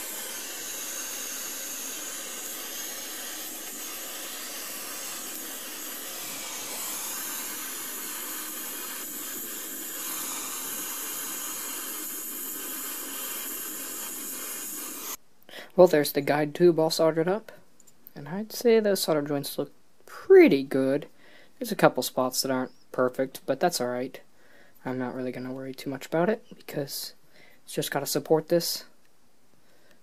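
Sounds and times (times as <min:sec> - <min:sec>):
gas torch hissing: 0:00.0 - 0:15.2.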